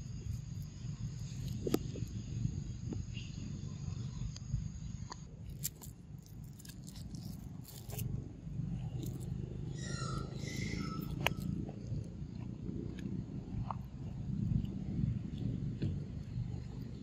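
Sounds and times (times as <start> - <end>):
wind rumble on microphone: 0.0 - 17.0
high-pitched animal call: 9.7 - 11.6.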